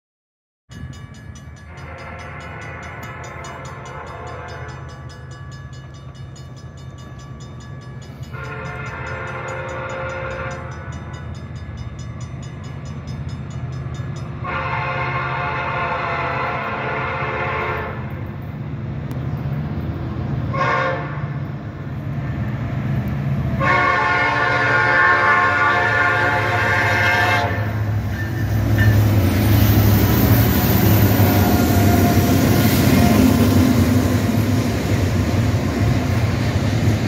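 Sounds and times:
train rumble: 0.7s - 37.0s
locomotive air horn blasts: 1.7s - 4.9s, 8.3s - 11.0s, 14.4s - 18.2s, 20.5s - 21.4s, 23.6s - 28.4s, 31.0s - 33.5s.

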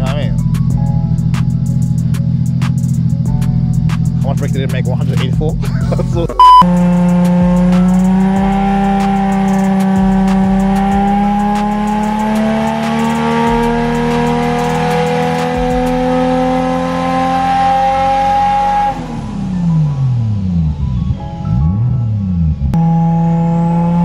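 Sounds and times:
car engine revving on dyno: 6.7s - 20.6s, 22.6s - 24.0s.

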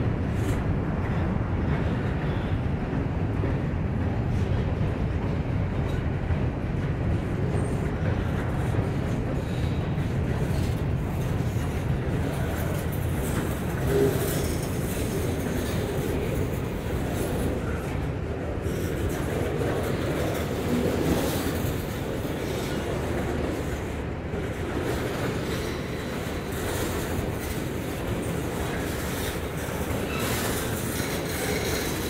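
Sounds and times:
train wheels rumbling on rail: 0.0s - 32.0s
wheels clicking over rail joints: 0.3s - 32.0s
train wheel squeal: 9.4s - 17.9s, 24.8s - 32.0s.

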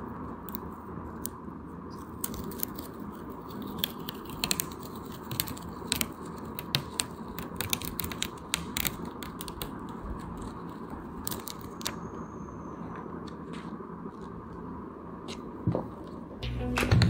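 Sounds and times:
paper label peeling crackle: 0.4s - 12.4s.

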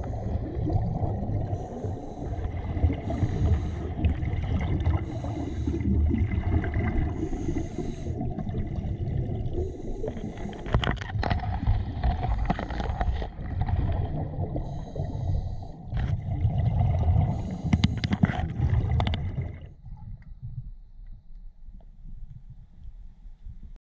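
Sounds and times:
bubbling exhaled air: 0.0s - 20.2s
regulator hissing inhalations: 1.5s - 4.1s, 4.9s - 6.0s, 7.1s - 8.3s, 17.3s - 18.2s.

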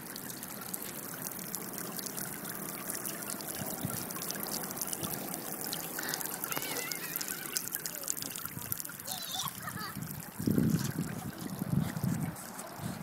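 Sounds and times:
water jets spattering on concrete: 0.0s - 13.0s.

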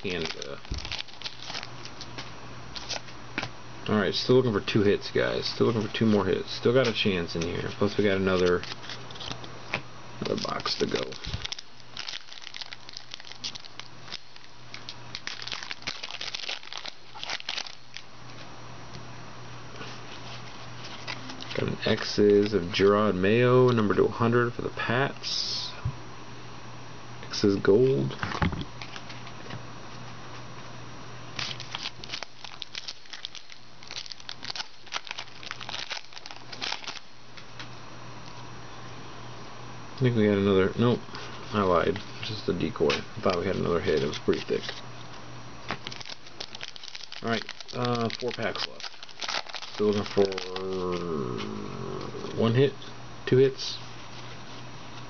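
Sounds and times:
foil wrapper crinkling and tearing: 0.0s - 3.2s, 7.8s - 9.5s, 10.2s - 18.1s, 20.2s - 22.5s, 31.4s - 37.1s, 45.7s - 51.1s
steady low hum: 0.0s - 55.0s.

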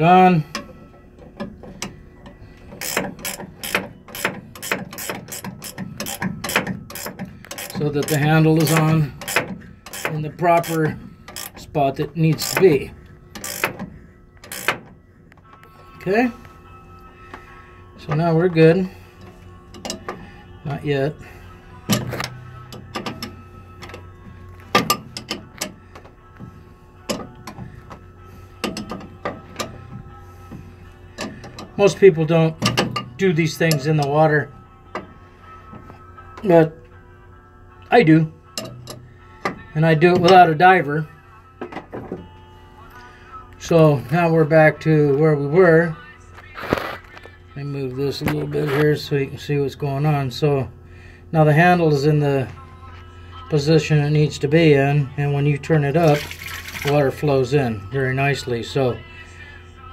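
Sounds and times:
steady low hum: 0.0s - 59.9s
ratcheting wrench clicking: 2.8s - 11.6s, 13.4s - 14.9s.

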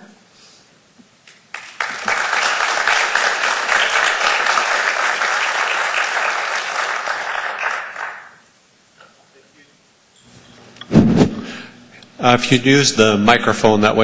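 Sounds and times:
audience applauding: 1.3s - 8.4s.

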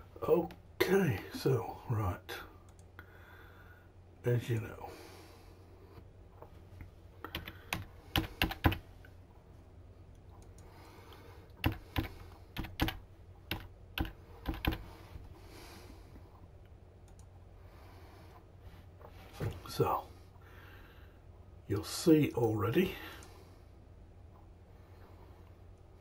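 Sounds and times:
typing on keyboard: 7.3s - 8.8s, 11.6s - 14.8s.

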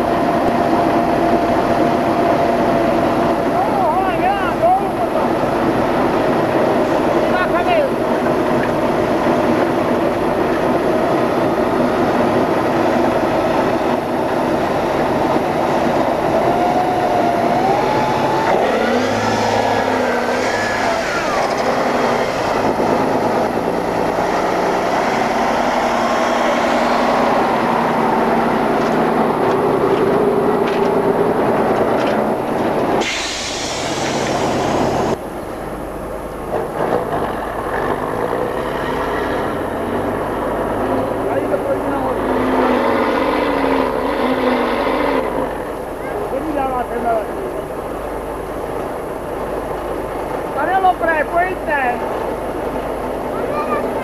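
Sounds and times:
truck diesel engines labouring: 0.0s - 54.0s
short rush of noise: 33.0s - 35.2s.

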